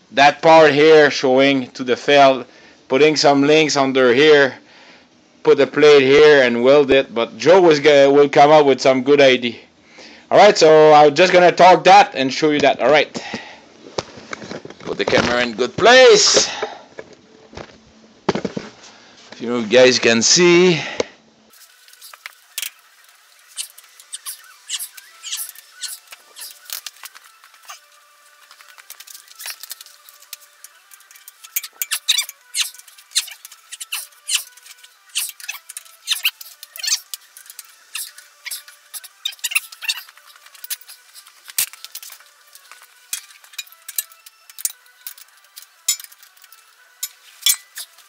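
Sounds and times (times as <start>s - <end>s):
metal squeaks: 21.9s - 48.0s
wrench clicking on metal: 31.0s - 48.0s.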